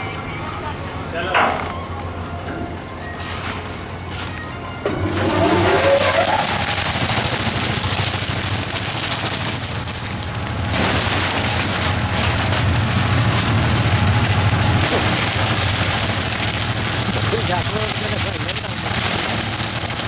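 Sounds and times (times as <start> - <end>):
recycling machine rattling: 4.8 - 20.0.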